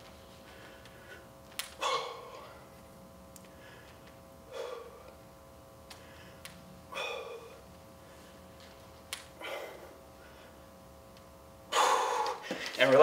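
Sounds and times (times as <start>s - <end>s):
faint steady hum: 0.0s - 13.0s
man exhaling forcefully: 1.8s - 2.6s, 6.9s - 7.6s.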